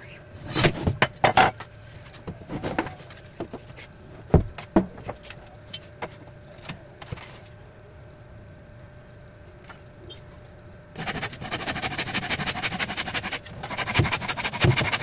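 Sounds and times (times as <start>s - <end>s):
wood scraping on plywood: 11.0s - 15.0s.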